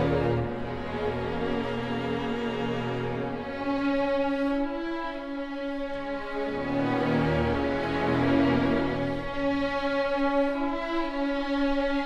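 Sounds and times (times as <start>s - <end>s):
orchestra strings bowing sustained notes: 0.0s - 12.0s.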